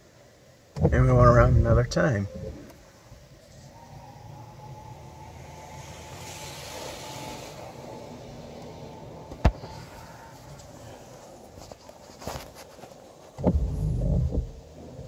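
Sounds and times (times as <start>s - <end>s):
car wash machinery hum: 0.0s - 15.0s
water spray hissing: 5.4s - 8.6s.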